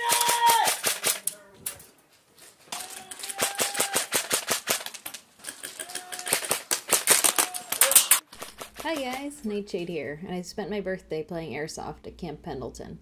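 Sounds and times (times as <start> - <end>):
airsoft guns firing bursts: 0.0 - 1.3, 3.2 - 5.0, 6.2 - 7.6.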